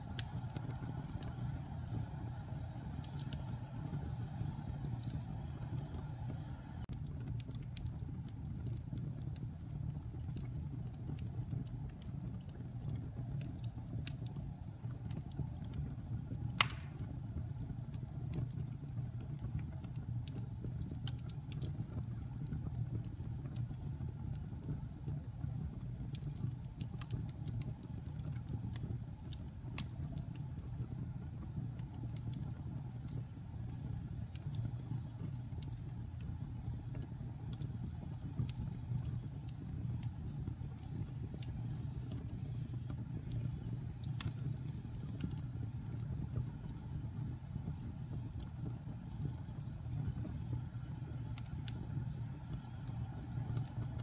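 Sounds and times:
fire rumbling: 0.0 - 54.0
logs crackling: 16.4 - 17.4
loud pop from fire: 16.5 - 17.4.

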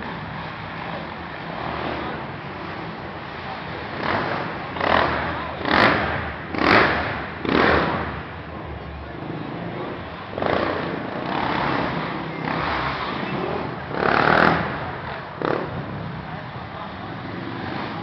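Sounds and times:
quad engine revving: 3.6 - 8.3, 9.4 - 16.1.

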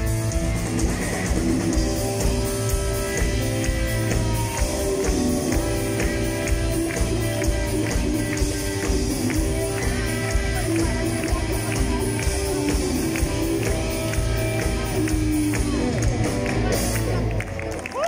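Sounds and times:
rock band playing: 0.0 - 18.0.

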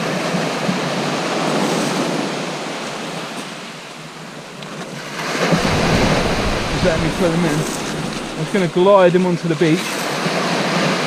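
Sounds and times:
surf breaking on shingle beach: 4.4 - 9.5.

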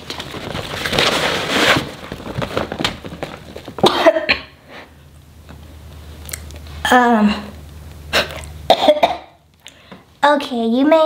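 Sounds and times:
plastic bag rustling and crinkling: 0.0 - 3.9.

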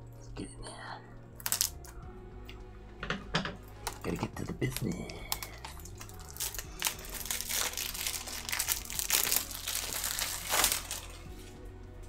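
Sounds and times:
plastic wrap tearing and crinkling: 1.4 - 1.8, 3.8 - 11.6.

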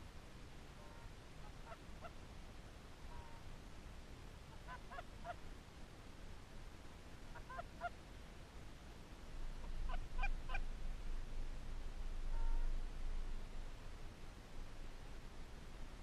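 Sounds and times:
low wind rumble: 0.0 - 16.0
distant geese honking: 9.6 - 10.7, 12.3 - 12.8.

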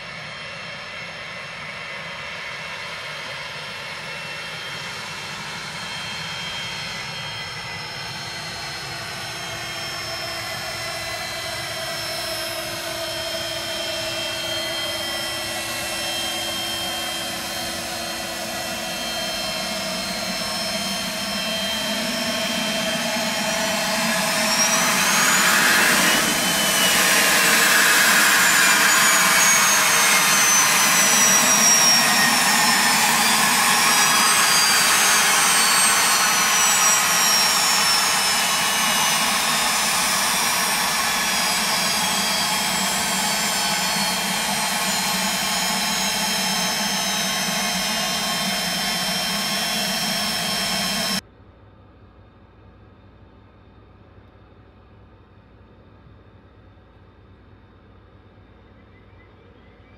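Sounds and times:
jet engines whining: 0.0 - 51.2.

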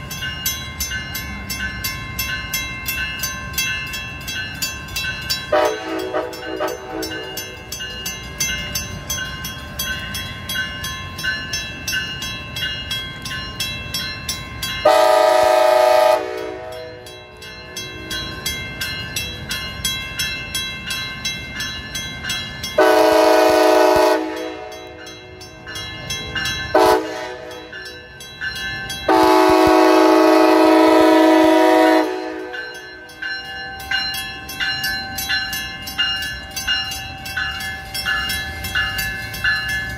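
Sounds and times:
crossing warning bell dinging: 0.0 - 39.9
train horn blasts: 5.5 - 7.2, 14.8 - 16.8, 22.8 - 24.8, 26.7 - 27.6, 29.1 - 32.6.

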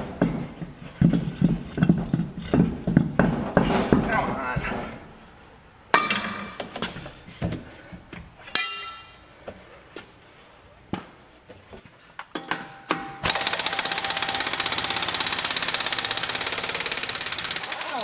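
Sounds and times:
truck wheel clunking: 0.0 - 5.1
ringing metallic clank: 8.5 - 9.4, 11.8 - 13.3
air impact wrench hammering: 12.4 - 18.0.

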